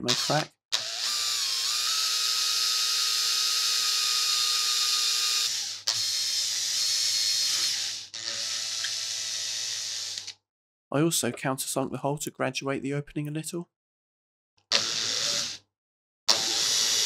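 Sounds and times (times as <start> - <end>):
cordless drill boring through resin: 0.0 - 10.4, 14.7 - 15.6, 16.3 - 17.0.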